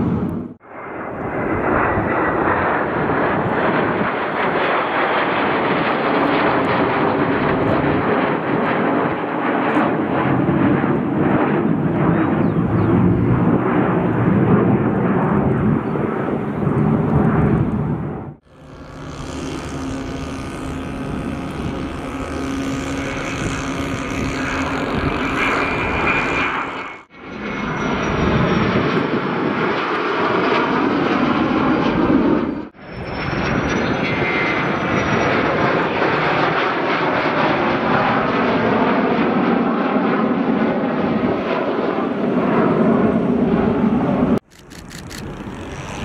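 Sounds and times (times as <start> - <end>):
jet engine noise: 0.0 - 46.0
faint high whine: 18.4 - 27.1.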